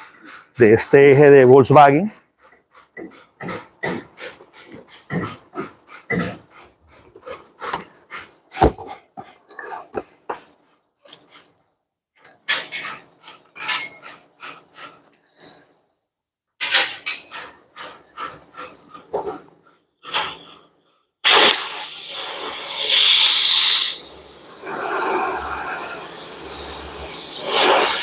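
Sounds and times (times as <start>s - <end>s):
cutting torch hissing: 21.2s - 28.0s.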